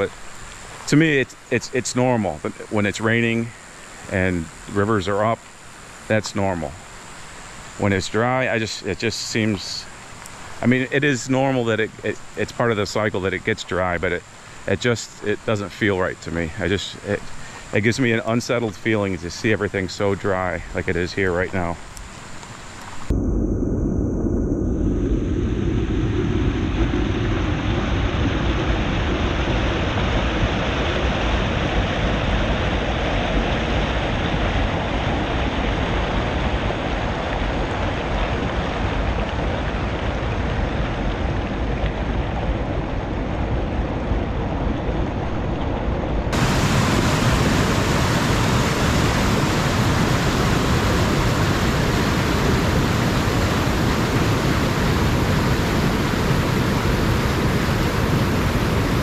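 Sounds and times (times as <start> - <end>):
deeper rush of rapid: 23.0 - 59.0
river water rushing over rocks: 46.3 - 59.0.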